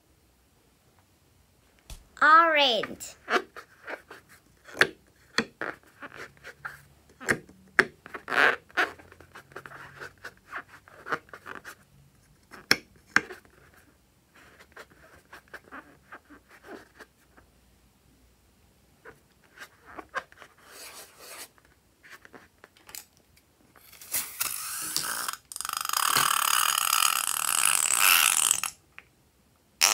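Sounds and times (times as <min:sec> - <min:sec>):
rubber balloon squeaking: 0:24.0 - 0:28.7.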